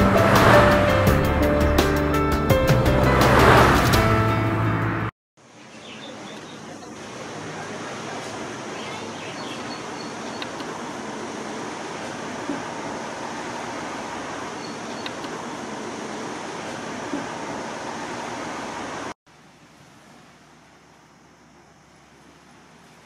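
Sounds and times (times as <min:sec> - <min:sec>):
steady outdoor hiss: 0:05.4 - 0:23.0.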